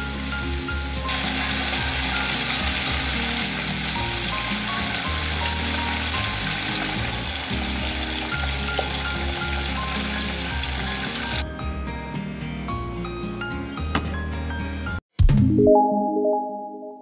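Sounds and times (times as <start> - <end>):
chicken deep-frying in oil: 0.0 - 11.4
background music: 0.0 - 17.0.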